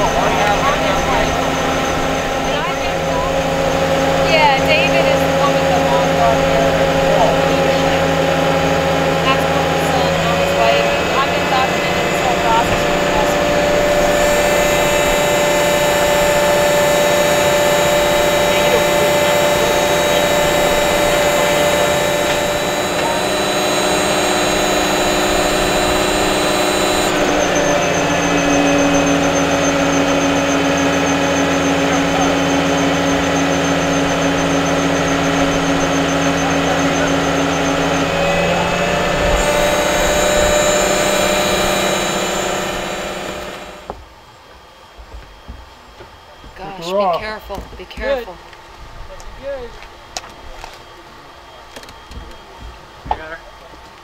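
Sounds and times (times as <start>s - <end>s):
high machine whine: 0.0s - 44.0s
travel lift engine running: 0.0s - 44.0s.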